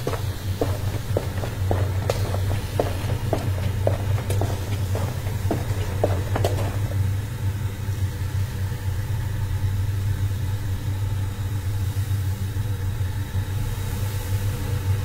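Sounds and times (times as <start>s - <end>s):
short taps: 0.0s - 7.0s.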